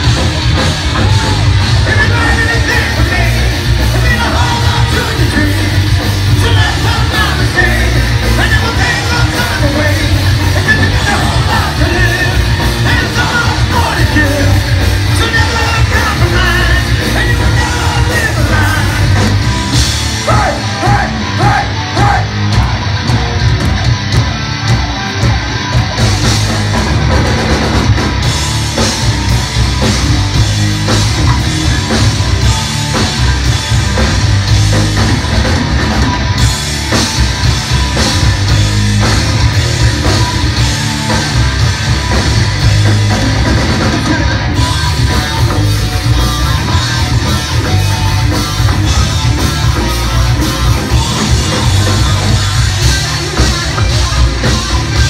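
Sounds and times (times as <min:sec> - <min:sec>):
heavy metal band playing live: 0:00.0 - 0:55.0
shouted and sung vocals: 0:00.8 - 0:23.4.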